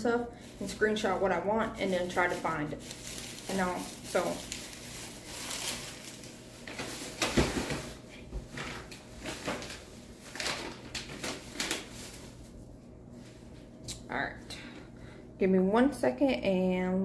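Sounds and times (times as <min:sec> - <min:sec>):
household knocks and rustles: 0:06.6 - 0:12.0.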